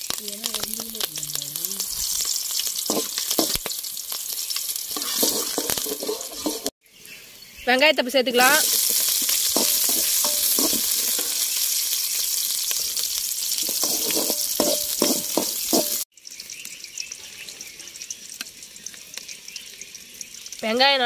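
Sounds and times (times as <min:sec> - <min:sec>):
onions sizzling in hot oil: 0:00.0 - 0:21.0
ladle scraping and clinking on pan: 0:04.9 - 0:06.7, 0:09.6 - 0:11.4, 0:13.6 - 0:16.0.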